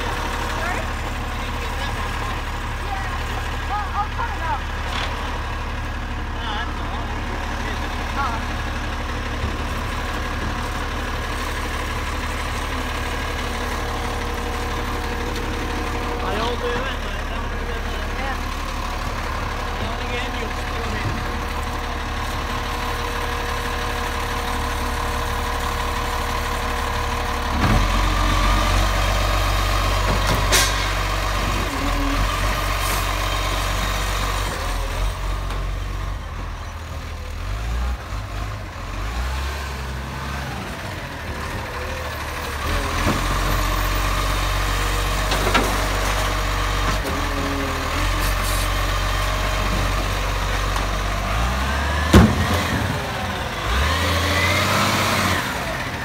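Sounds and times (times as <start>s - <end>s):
garbage truck engine running: 0.0s - 56.0s.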